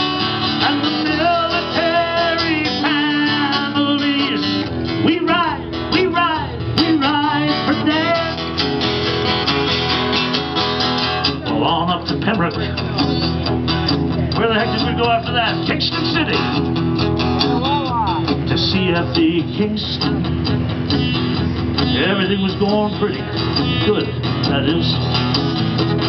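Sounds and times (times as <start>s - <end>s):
man singing: 0.0s - 8.6s, 11.4s - 12.9s, 14.3s - 16.3s, 17.8s - 20.5s, 21.8s - 25.1s
acoustic guitar strumming: 0.0s - 26.0s.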